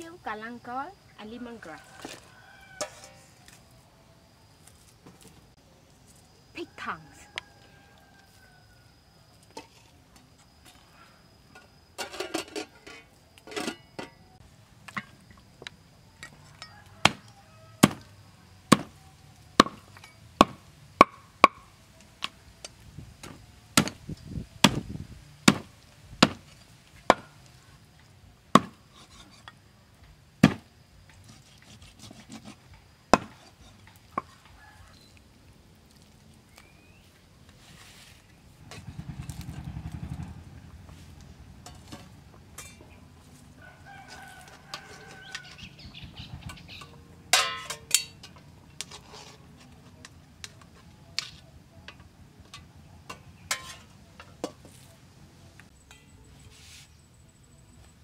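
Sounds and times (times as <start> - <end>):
cleaver chopping meat on wood: 17.8 - 18.0, 18.7 - 18.9, 19.6 - 19.8, 23.8 - 24.0, 25.4 - 26.4.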